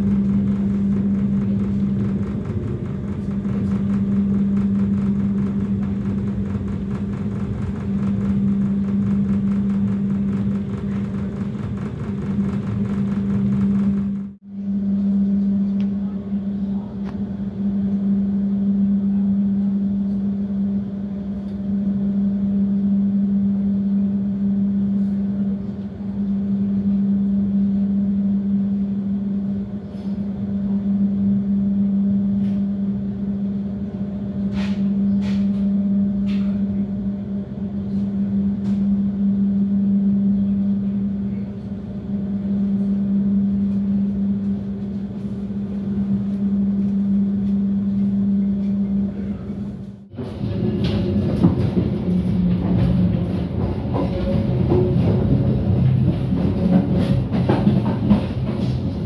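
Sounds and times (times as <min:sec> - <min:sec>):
train running hum and rumble: 0:00.0 - 0:59.0.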